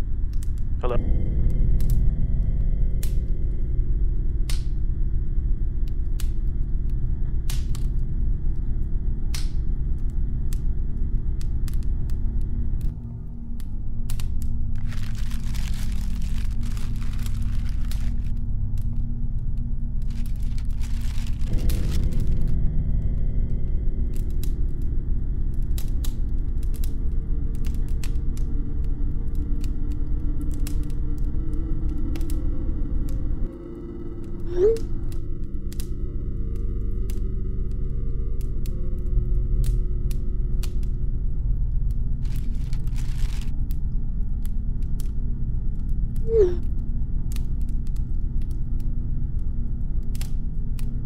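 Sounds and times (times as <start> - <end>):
low rumbling drone: 0.0 - 51.0.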